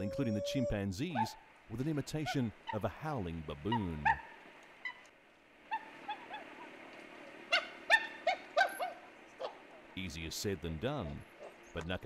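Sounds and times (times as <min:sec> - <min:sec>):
short rising and falling hoots: 0:00.0 - 0:01.3.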